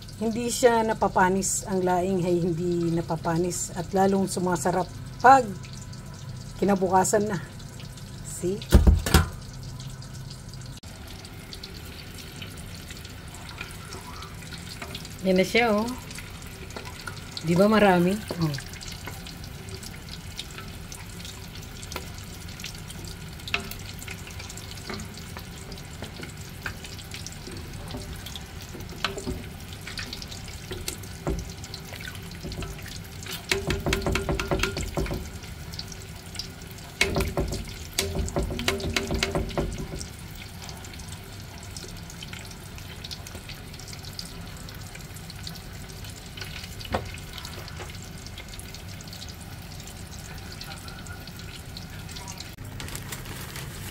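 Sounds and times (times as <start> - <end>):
pot simmering: 0.0 - 53.9.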